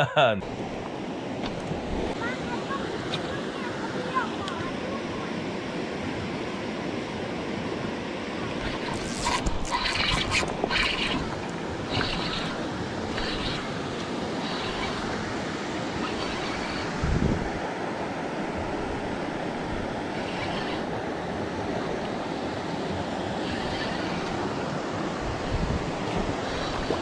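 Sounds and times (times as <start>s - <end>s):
wind on microphone: 8.5s - 17.7s, 22.8s - 27.0s.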